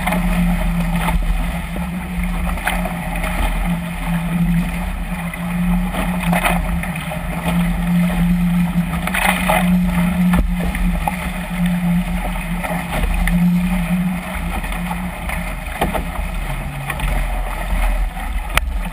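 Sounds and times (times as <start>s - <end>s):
low hum: 0.0s - 18.9s
water rushing along a hull: 0.0s - 18.9s
water slaps: 8.8s - 13.6s.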